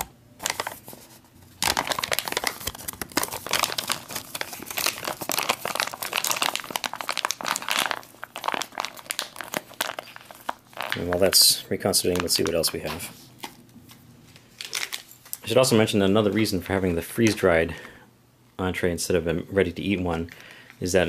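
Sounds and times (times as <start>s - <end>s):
foil pouch crinkling: 0.4s - 12.8s, 14.6s - 15.4s.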